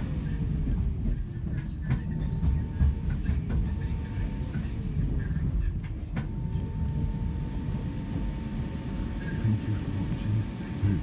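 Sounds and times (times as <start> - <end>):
thin steady whine: 0.0 - 11.0
train rumbling on track: 0.0 - 11.0.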